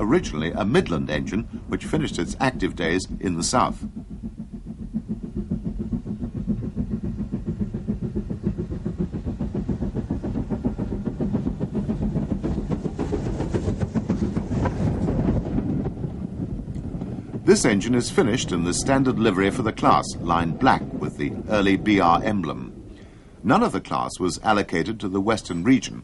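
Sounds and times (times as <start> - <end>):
rail noise: 0.0 - 26.0
steam locomotive chuffing: 0.0 - 26.0.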